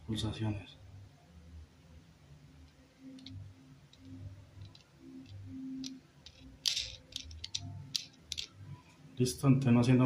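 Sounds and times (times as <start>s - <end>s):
clicks and handling sounds: 2.7s - 8.6s.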